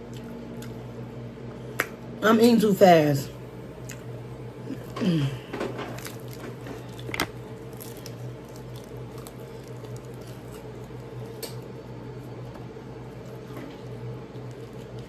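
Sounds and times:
close chewing and mouth noises: 0.0s - 1.0s, 3.8s - 4.1s, 5.8s - 15.0s
steady low hum: 0.0s - 15.0s.

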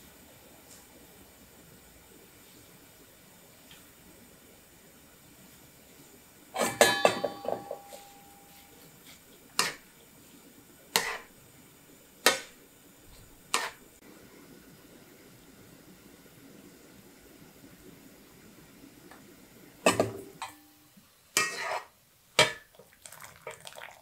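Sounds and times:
kitchenware clattering: 6.6s - 8.7s, 19.9s - 20.6s
metallic ring: 6.6s - 8.8s.

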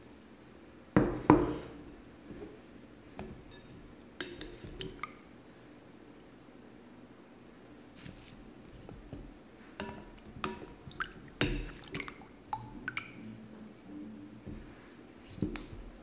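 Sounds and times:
water dripping: 3.6s - 5.2s, 9.8s - 13.3s.

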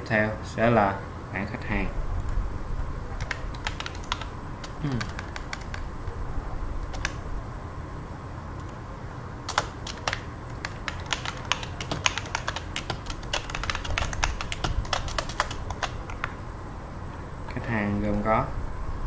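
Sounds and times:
computer keyboard typing: 3.2s - 5.9s, 6.8s - 7.2s, 9.5s - 16.4s.

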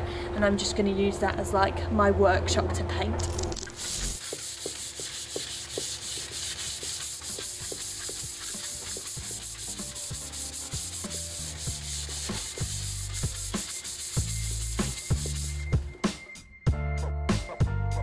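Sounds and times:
sandpaper rubbing on wood: 3.7s - 15.7s.

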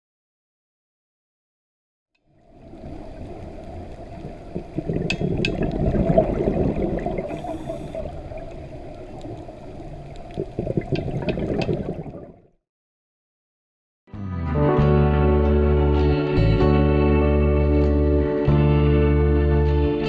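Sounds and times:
water bubbling and gurgling: 2.3s - 12.6s
small pops and clicks: 8.4s - 12.0s.

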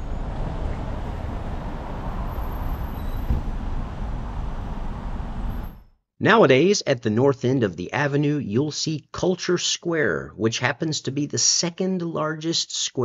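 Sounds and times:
road traffic rumble: 0.0s - 5.8s.

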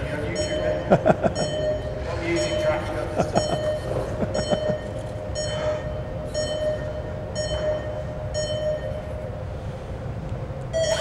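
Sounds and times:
steady hum: 0.0s - 11.0s
short electronic beeps: 3.4s - 9.1s, 10.8s - 11.0s.

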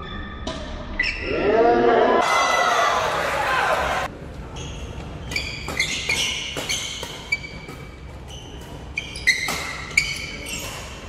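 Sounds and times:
shoes squeaking on hall floor: 4.4s - 11.0s
racket hitting shuttlecock: 5.2s - 11.0s.

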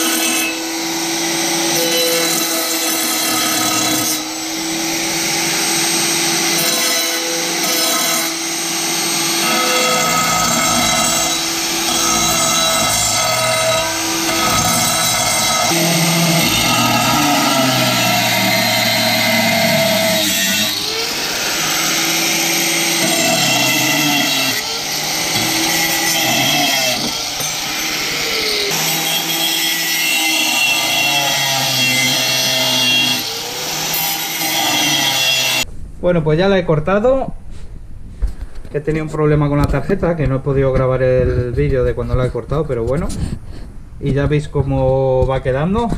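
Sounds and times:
angle grinder cutting steel: 0.0s - 35.7s.

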